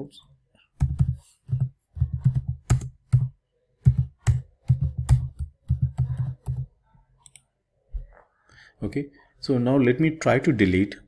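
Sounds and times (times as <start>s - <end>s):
typing on computer keyboard: 0.8s - 7.4s.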